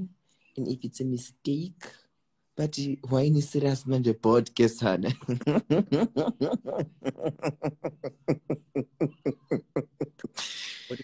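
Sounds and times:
man laughing hard: 0:05.1 - 0:11.0.

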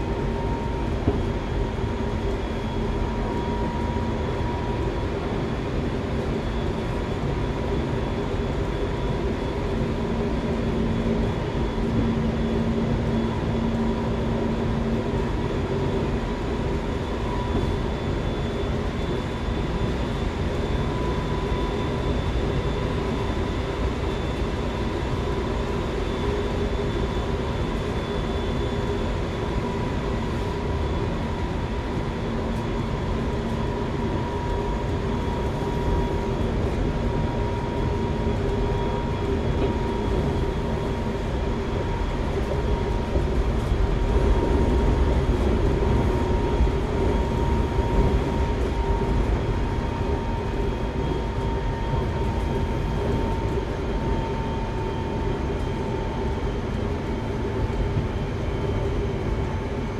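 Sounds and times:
train wheels rumbling on rail: 0:37.9 - 0:51.4.

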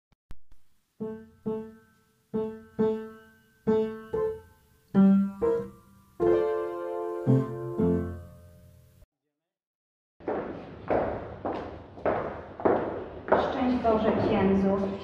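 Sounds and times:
slow solo piano: 0:01.0 - 0:08.5.

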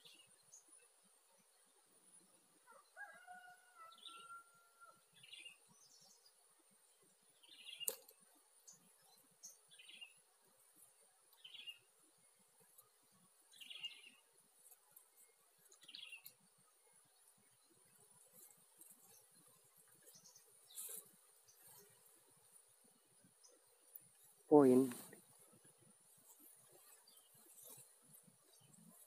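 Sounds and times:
faint bird chirps: 0:11.3 - 0:11.9, 0:13.5 - 0:14.3.

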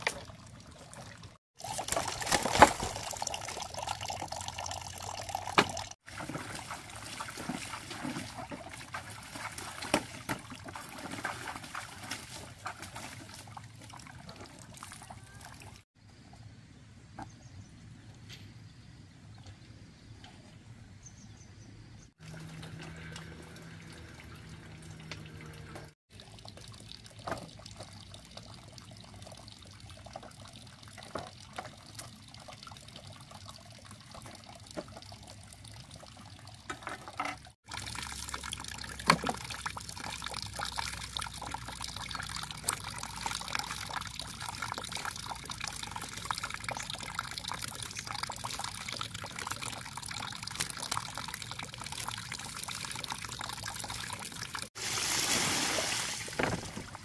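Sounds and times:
water trickling and splashing: 0:00.0 - 0:15.9, 0:22.2 - 0:57.0.

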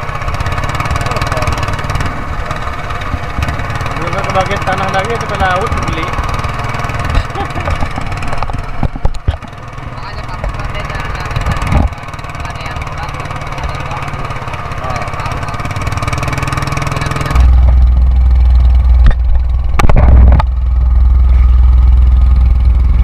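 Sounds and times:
boat engine running: 0:00.0 - 0:23.0
wind rumble on microphone: 0:11.4 - 0:12.0, 0:17.3 - 0:20.7.

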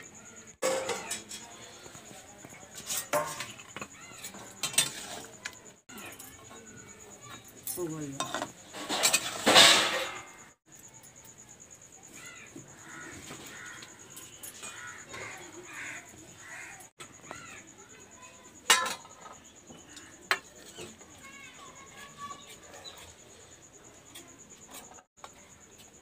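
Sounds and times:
spatula scraping in a wok: 0:00.6 - 0:05.8, 0:08.2 - 0:10.4
crows cawing: 0:12.1 - 0:17.7.

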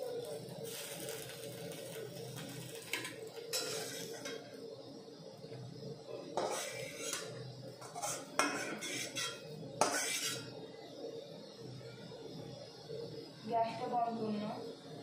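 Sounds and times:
metal spatula scraping and clinking: 0:02.9 - 0:04.4, 0:06.3 - 0:10.5.

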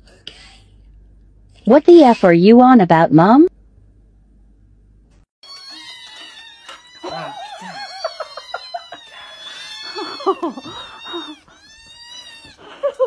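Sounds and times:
kittens mewing: 0:05.4 - 0:13.0.

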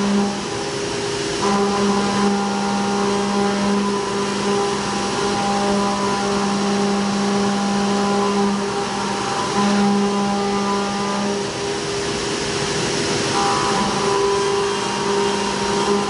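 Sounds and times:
coolant spray hiss: 0:00.0 - 0:16.0
milling machine cutting tone: 0:01.4 - 0:11.8, 0:12.8 - 0:16.0.

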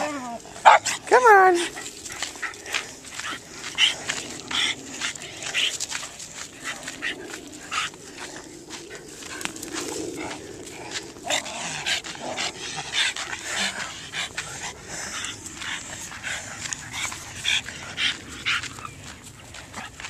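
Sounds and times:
dogs whimpering: 0:00.0 - 0:02.7
dogs panting: 0:00.0 - 0:20.0.

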